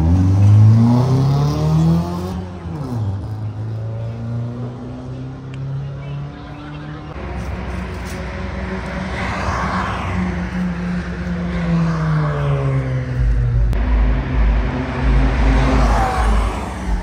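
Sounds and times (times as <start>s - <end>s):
race cars driving past: 0.0s - 17.0s
strong low rumble: 12.6s - 17.0s.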